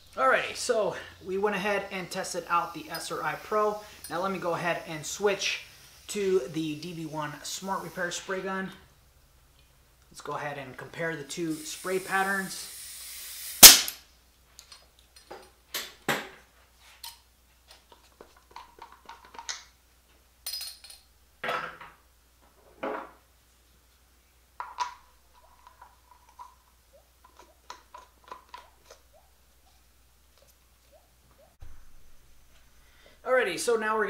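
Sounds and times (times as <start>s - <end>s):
spray guns clicking and clinking: 2.5s - 5.6s.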